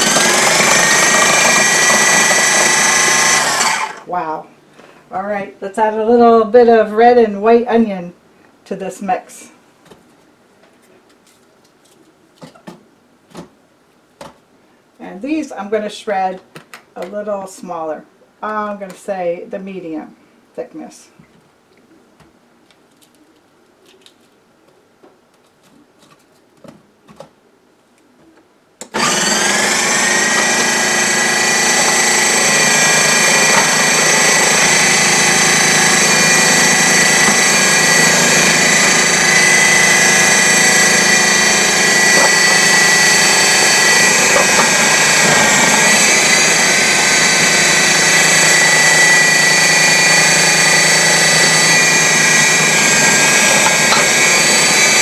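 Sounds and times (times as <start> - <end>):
food processor motor whining: 0.0 - 4.1, 28.8 - 55.0.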